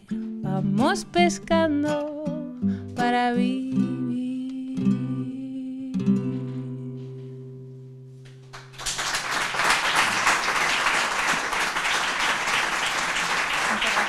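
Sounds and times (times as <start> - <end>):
audience applauding: 8.5 - 14.0.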